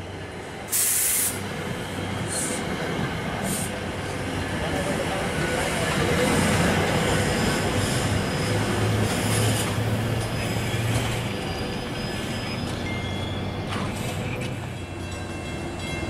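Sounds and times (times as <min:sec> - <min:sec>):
train wheels rumbling on rails: 0:00.0 - 0:16.0
faint high squeal: 0:10.3 - 0:14.4.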